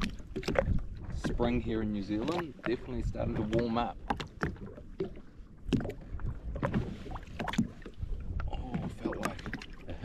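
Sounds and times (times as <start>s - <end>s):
low wind rumble: 0.0s - 10.0s
small waves slapping a hull: 0.0s - 10.0s.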